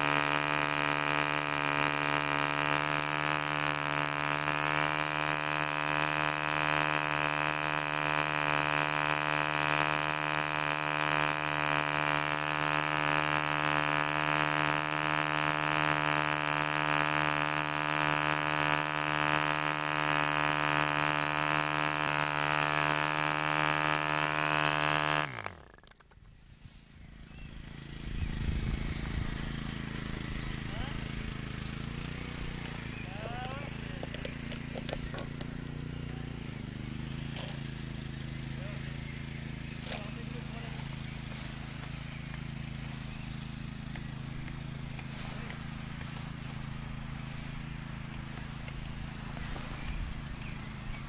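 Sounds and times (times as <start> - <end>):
model diesel engine running: 0.0 - 26.0, 27.3 - 51.0.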